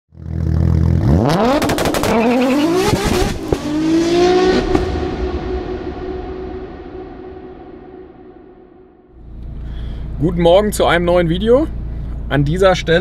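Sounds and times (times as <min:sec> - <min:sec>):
car engine revving: 0:00.2 - 0:10.4.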